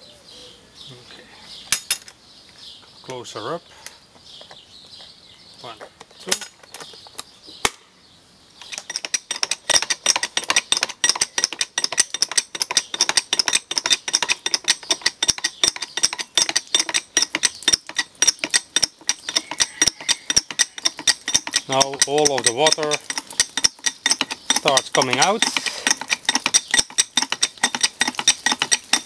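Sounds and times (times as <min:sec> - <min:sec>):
jack pump handle clicking and rattling: 0:08.6 - 0:29.0.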